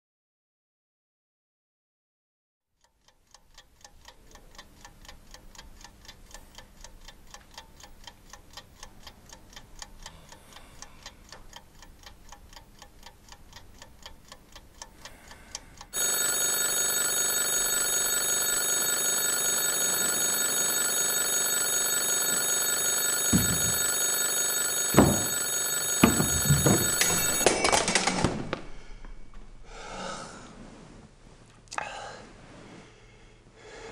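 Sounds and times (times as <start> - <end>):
alarm clock ticking: 2.8 - 28.0
alarm clock ringing: 16.0 - 27.8
knocks: 23.2 - 27.4.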